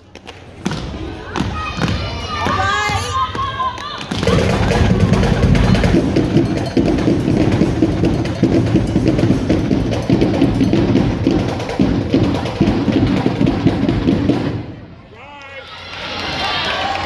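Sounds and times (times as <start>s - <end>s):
marching drumline cadence: 1.5s - 15.4s.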